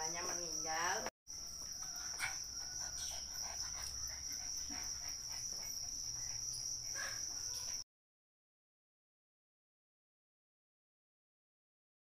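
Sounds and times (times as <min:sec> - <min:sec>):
cricket trilling: 0:00.0 - 0:07.8.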